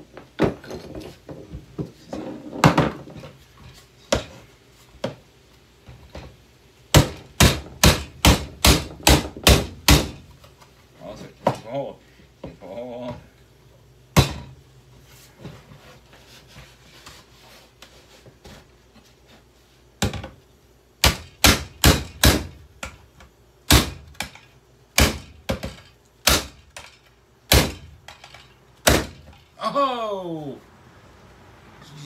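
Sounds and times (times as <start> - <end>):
handheld vacuum being smashed: 25.0 - 29.4.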